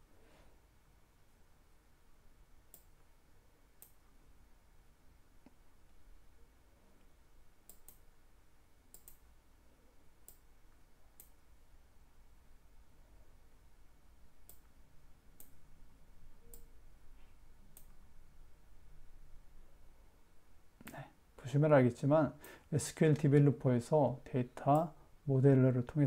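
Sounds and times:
low steady hum: 0:00.0 - 0:26.0
computer mouse clicks: 0:02.7 - 0:03.0, 0:03.8 - 0:04.0, 0:07.6 - 0:08.1, 0:08.9 - 0:09.2, 0:10.2 - 0:10.5, 0:11.2 - 0:11.4, 0:16.4 - 0:16.7, 0:17.7 - 0:18.0.

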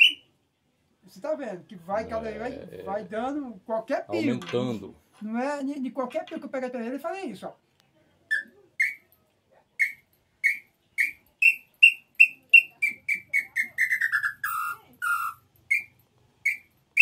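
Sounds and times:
bird call whistle notes: 0:00.0 - 0:00.2, 0:09.8 - 0:15.9.

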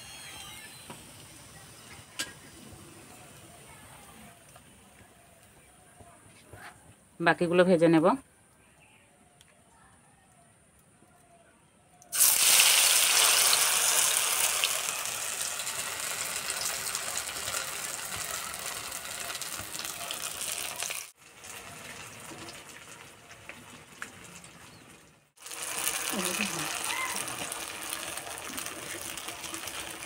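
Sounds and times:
small crackles of oil: 0:12.0 - 0:30.0
dough sizzling in hot oil: 0:12.1 - 0:30.0.

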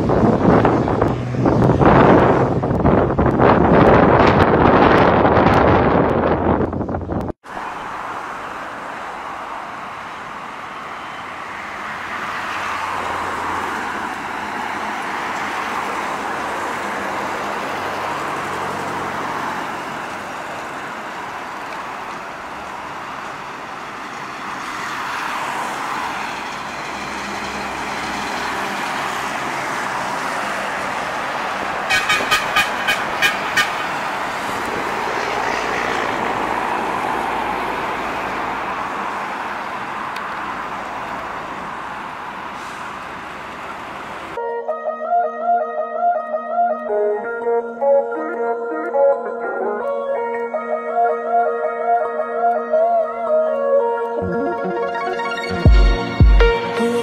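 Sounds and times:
trucks and traffic passing: 0:00.0 - 0:57.0
horn short toots: 0:31.9 - 0:33.9.

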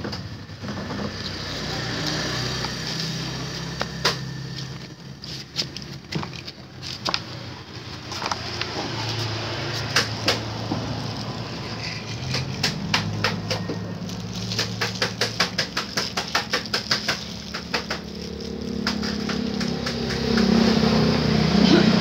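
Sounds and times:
plastic toys knocking on wood: 0:12.2 - 0:20.6.

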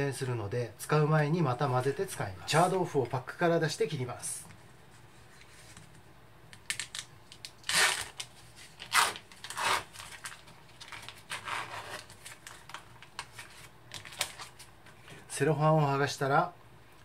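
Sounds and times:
cellophane seal peeling and crinkling: 0:06.6 - 0:14.7.

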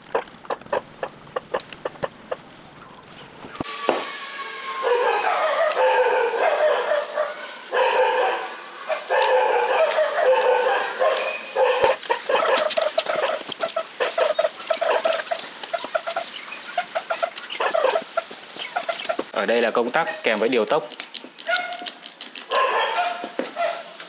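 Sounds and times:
chickens clucking: 0:00.0 - 0:03.6, 0:09.3 - 0:19.4.

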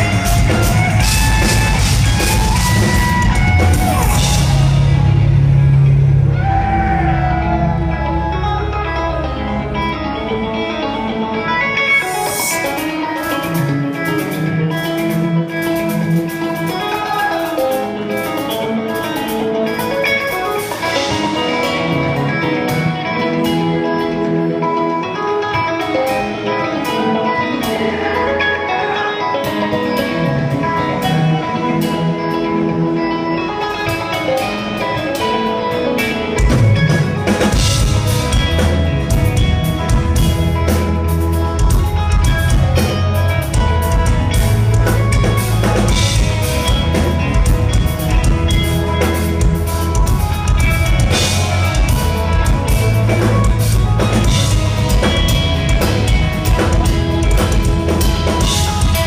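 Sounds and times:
drum kit: 0:00.0 - 0:08.3, 0:11.9 - 0:24.8, 0:33.6 - 0:59.0
bass: 0:00.0 - 0:59.0
clean electric guitar lines: 0:00.0 - 0:59.0.

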